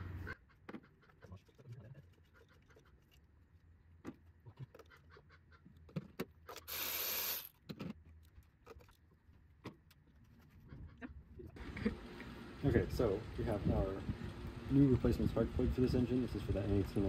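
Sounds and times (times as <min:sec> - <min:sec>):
short hiss: 0:06.7 - 0:07.5.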